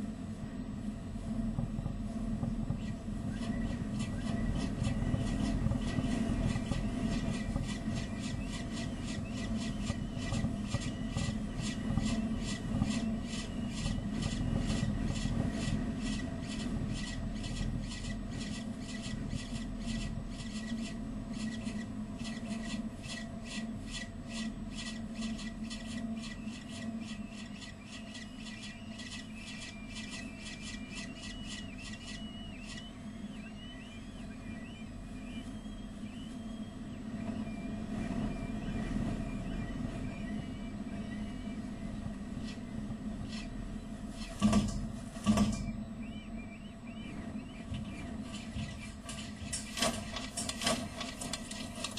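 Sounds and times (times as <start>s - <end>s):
steady low hum: 0.0s - 51.9s
chicks cheeping: 3.4s - 14.4s, 25.3s - 37.4s.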